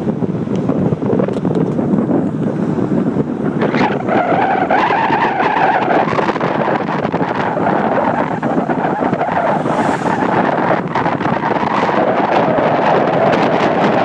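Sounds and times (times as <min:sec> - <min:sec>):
longboard wheels rolling on asphalt: 0:00.0 - 0:14.0
wind on microphone: 0:00.0 - 0:14.0
wheels squealing in a slide: 0:03.6 - 0:14.0.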